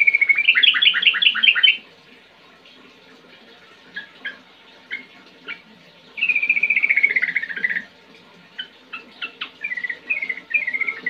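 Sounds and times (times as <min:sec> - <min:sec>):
bird singing: 0:00.0 - 0:01.8, 0:06.2 - 0:07.9, 0:08.6 - 0:11.0.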